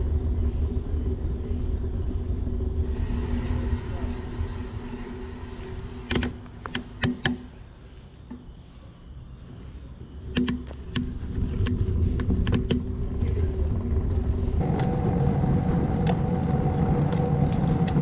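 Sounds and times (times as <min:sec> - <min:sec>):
motor running with low rumble: 0:00.0 - 0:07.0, 0:10.0 - 0:18.0
sharp clicks: 0:10.3 - 0:12.9.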